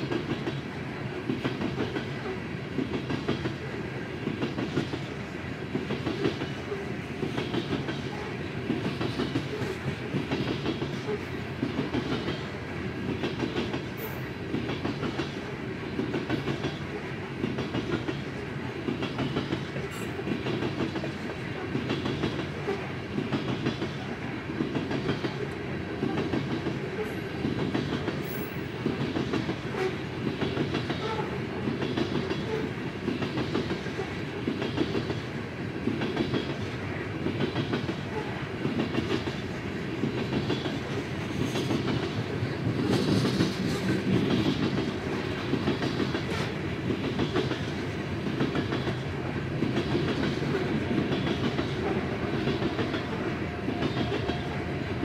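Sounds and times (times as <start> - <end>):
train cars rumbling past: 0.0 - 55.0
wheels clickety-clack on rail joints: 0.0 - 55.0.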